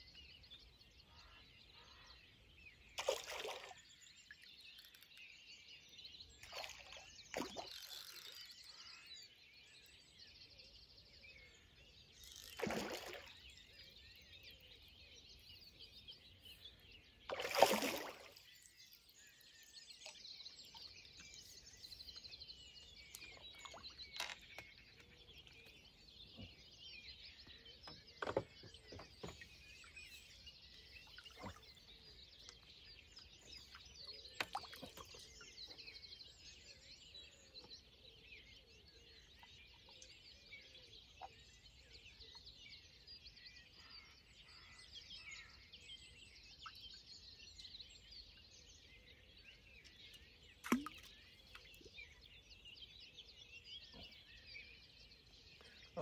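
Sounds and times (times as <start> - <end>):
small birds singing and chirping: 0.0 - 56.0.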